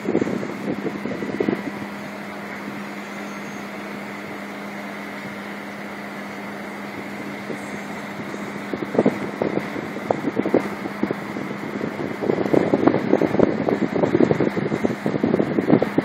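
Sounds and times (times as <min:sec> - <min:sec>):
machinery hum: 0:00.0 - 0:16.0
wind buffeting microphone: 0:00.0 - 0:16.0.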